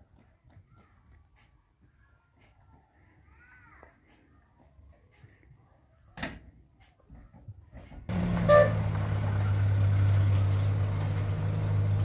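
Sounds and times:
low motor hum: 8.1 - 12.0.

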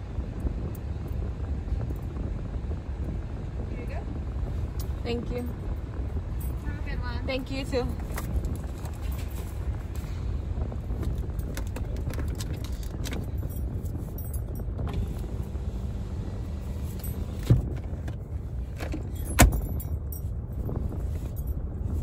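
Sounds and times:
car cabin engine rumble: 0.0 - 22.0
handling clicks and rustles: 6.3 - 15.5, 16.7 - 22.0.

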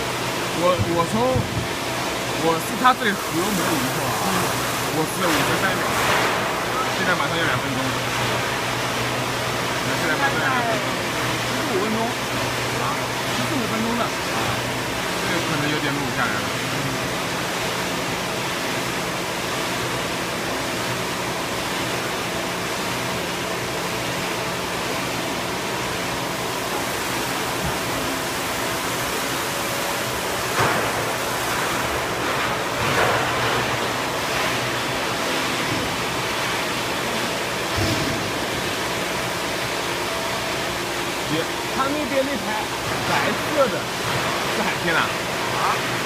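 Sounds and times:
machine hissing: 0.0 - 17.4.

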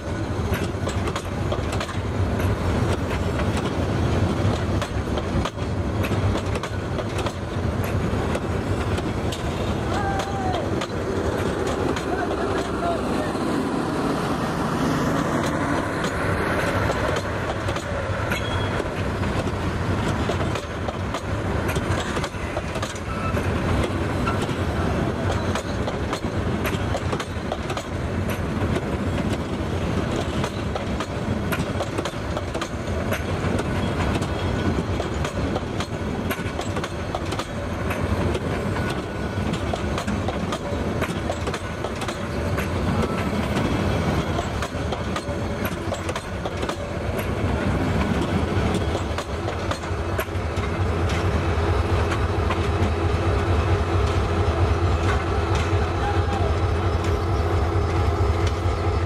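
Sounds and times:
wheels clacking over rail joints: 0.0 - 13.3, 14.8 - 58.8
train wheels rumbling on rails: 0.0 - 59.0.

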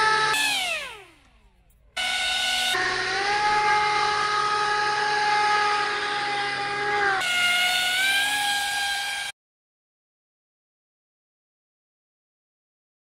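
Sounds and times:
model airboat motor whining: 0.0 - 9.3.

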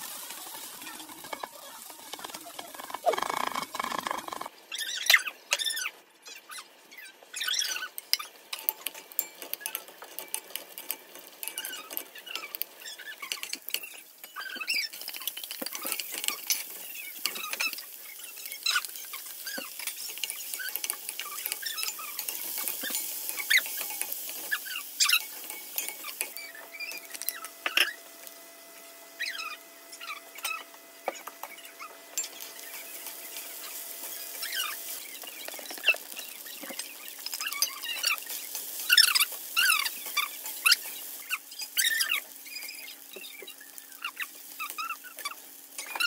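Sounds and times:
oil sizzling: 0.0 - 4.5, 7.6 - 46.0
wooden spatula scraping a wok: 14.6 - 28.0, 31.1 - 43.0
short high squeaks: 38.8 - 43.6.

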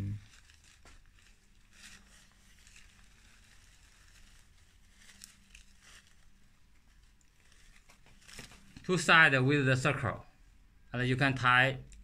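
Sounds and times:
garland rustling: 0.0 - 9.2.

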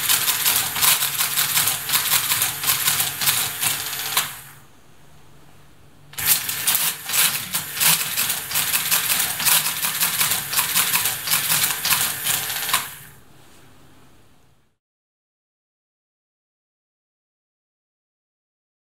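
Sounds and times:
mechanical calculator clattering: 0.0 - 4.4, 6.2 - 13.1
faint steady hum: 1.7 - 6.3, 13.0 - 14.8.

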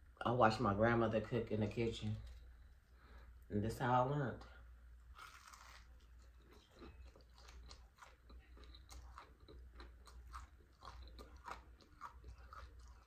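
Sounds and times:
crunching and chewing fried fish: 5.1 - 13.0.

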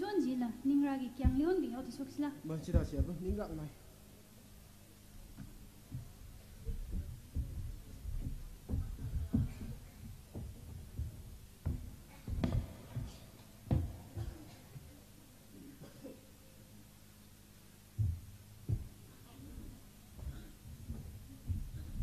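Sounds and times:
low electrical hum: 0.0 - 22.0
footsteps thudding on stage: 1.2 - 3.8, 5.2 - 15.0, 17.9 - 22.0.

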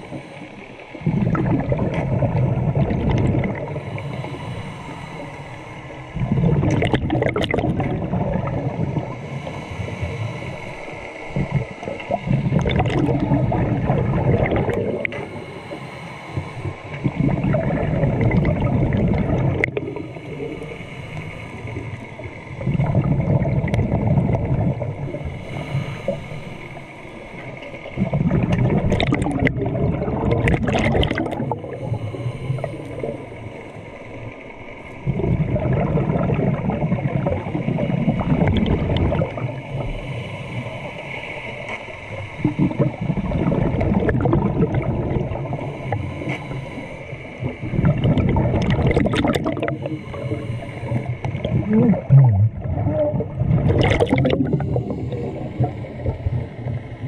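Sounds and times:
regulator bubbling exhalations: 0.9 - 4.7, 6.2 - 10.2, 11.3 - 15.6, 16.6 - 20.7, 21.6 - 25.3, 28.0 - 33.2, 35.0 - 40.0, 42.4 - 56.8.

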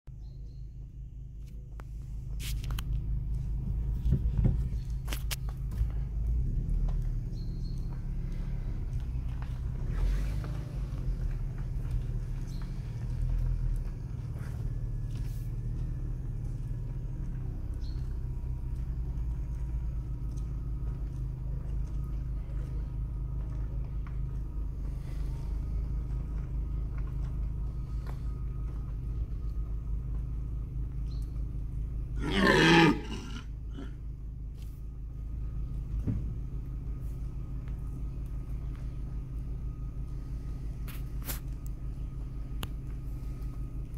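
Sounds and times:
car engine idling: 0.1 - 43.9
deer stag roaring: 32.2 - 34.0.

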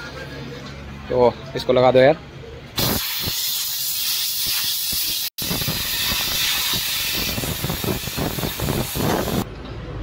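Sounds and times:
compressed air hissing: 2.8 - 9.5.

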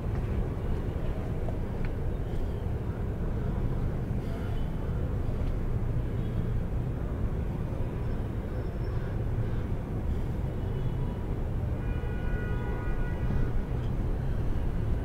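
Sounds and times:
steady low city rumble: 0.0 - 15.0.

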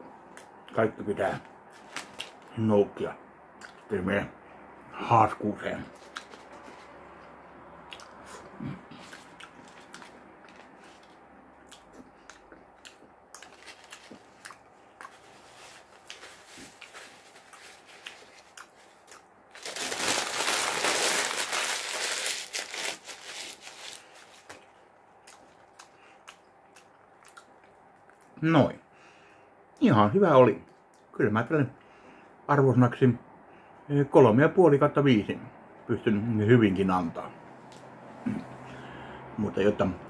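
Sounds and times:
paper wrapping crinkling: 1.7 - 2.5, 13.4 - 14.4, 15.1 - 24.8
person chewing food: 6.0 - 19.3, 23.9 - 28.3.

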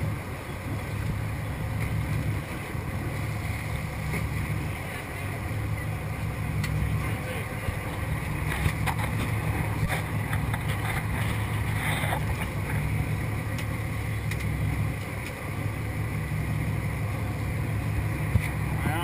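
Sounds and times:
boat engine droning: 0.0 - 19.0.

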